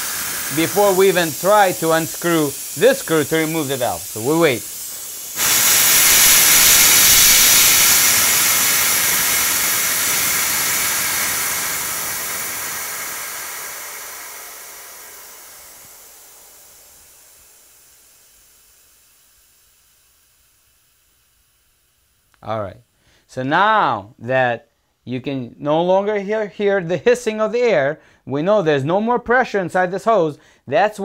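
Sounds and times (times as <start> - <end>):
high-pressure air hissing: 0.0 - 22.4.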